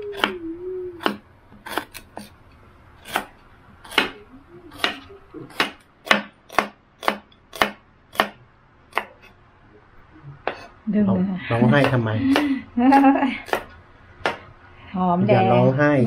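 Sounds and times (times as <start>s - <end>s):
knife chopping on cutting board: 1.0s - 2.3s, 3.0s - 4.2s, 4.8s - 9.3s, 11.8s - 14.4s.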